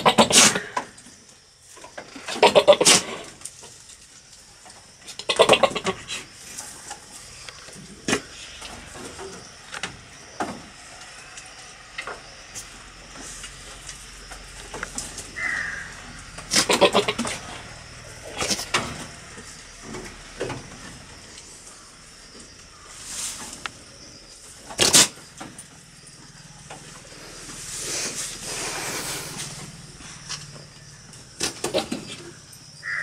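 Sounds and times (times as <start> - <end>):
billy goat calling: 2.4 - 3.1, 15.3 - 17.5.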